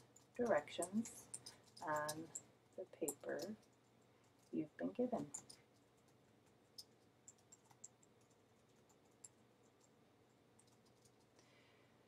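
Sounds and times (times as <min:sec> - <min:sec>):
keyboard typing: 0:00.0 - 0:02.4, 0:05.2 - 0:10.0, 0:10.6 - 0:11.3.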